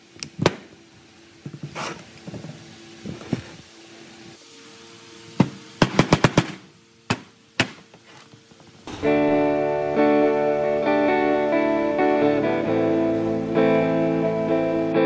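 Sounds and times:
plucked guitar music: 0:08.9 - 0:15.0.

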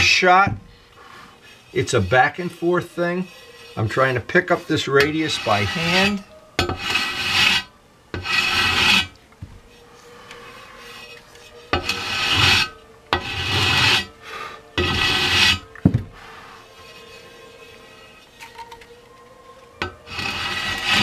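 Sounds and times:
sanding block rasping: 0:01.6 - 0:06.2, 0:06.8 - 0:09.1, 0:11.8 - 0:14.1, 0:14.8 - 0:15.6, 0:20.1 - 0:21.0.

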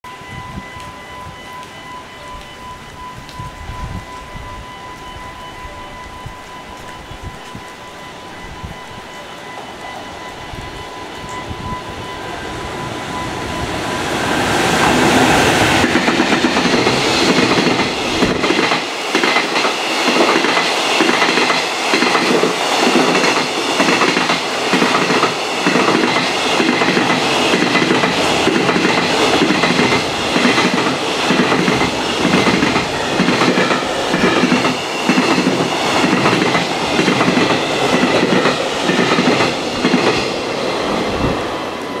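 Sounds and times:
electric locomotive rushing past: 0:00.0 - 0:42.0.

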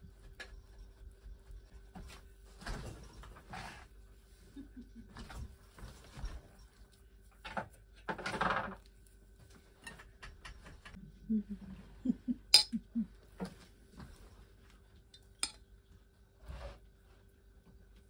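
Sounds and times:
rustles and knocks of pancakes: 0:00.0 - 0:03.8, 0:05.0 - 0:11.0
metal spoon clinking on bowl: 0:12.5 - 0:12.8.

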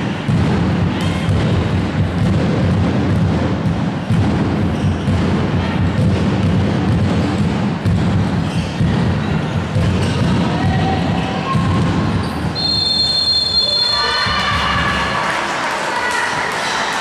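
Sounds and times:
ball bouncing on hall floor: 0:00.0 - 0:15.2
murmur of spectators: 0:00.0 - 0:17.0
long high whistle: 0:12.6 - 0:14.2.

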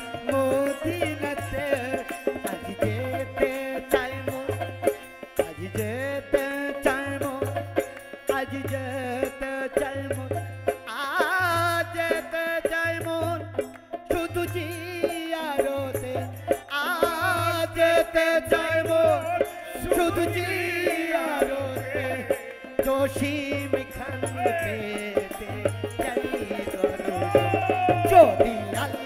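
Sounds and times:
harmonium chords: 0:00.0 - 0:29.0
men singing: 0:00.0 - 0:29.0
tambourine jingling: 0:00.0 - 0:29.0
hand drum beat: 0:09.8 - 0:29.0.

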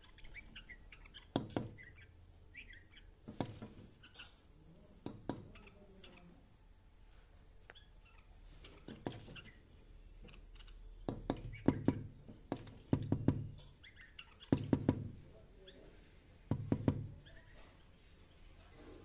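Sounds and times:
taps and knocks on window: 0:01.3 - 0:01.8, 0:03.2 - 0:03.9, 0:11.0 - 0:13.6, 0:14.5 - 0:15.2, 0:16.5 - 0:17.2.

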